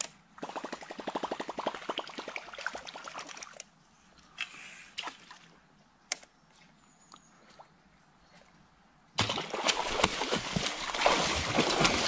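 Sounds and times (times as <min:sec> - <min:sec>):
fish splashing in water: 0:09.2 - 0:12.0.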